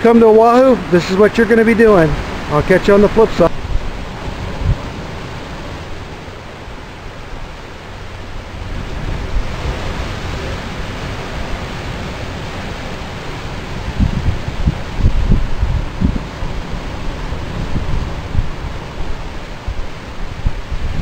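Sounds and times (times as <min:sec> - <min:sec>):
surf breaking over rocks: 0:00.0 - 0:21.0
wind thumps on microphone: 0:03.4 - 0:06.2, 0:08.4 - 0:11.6, 0:13.6 - 0:21.0.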